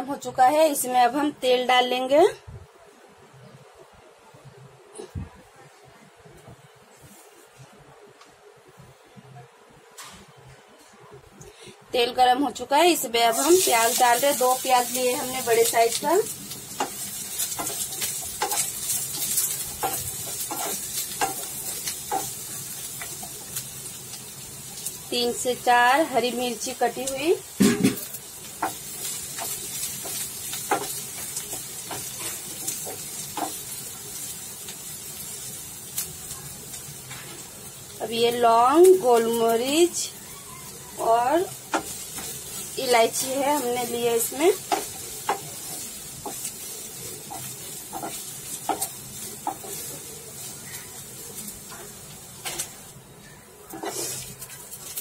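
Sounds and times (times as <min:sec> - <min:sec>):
onions sizzling in oil: 0:12.0 - 0:55.0
wooden spatula scraping a pan: 0:16.8 - 0:22.4, 0:41.0 - 0:52.7, 0:53.7 - 0:55.0.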